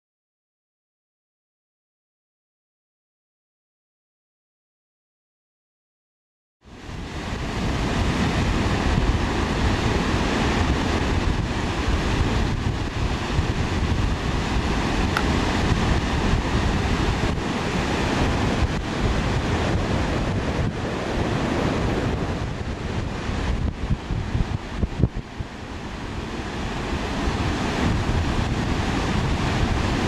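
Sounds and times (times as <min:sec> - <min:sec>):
surf breaking on beach: 0:06.7 - 0:30.0
wind buffeting microphone: 0:06.7 - 0:30.0.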